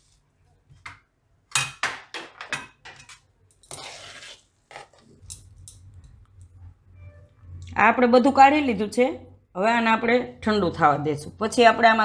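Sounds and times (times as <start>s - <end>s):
spatula scraping pan: 3.1s - 5.1s.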